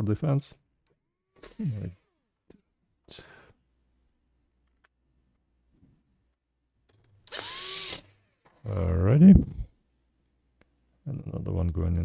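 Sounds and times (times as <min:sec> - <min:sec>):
electric screwdriver motor whine: 0:07.3 - 0:08.2.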